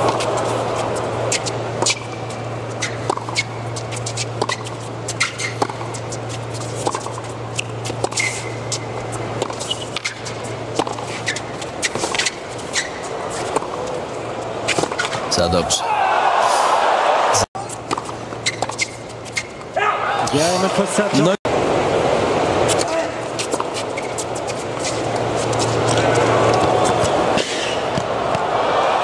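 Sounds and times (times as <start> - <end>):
shoes squeaking on court: 0.0 - 15.6, 17.6 - 20.0, 22.7 - 28.0
racket hitting tennis ball: 2.8 - 6.0, 9.4 - 13.8
murmur of stadium crowd: 13.2 - 17.9, 19.9 - 29.0.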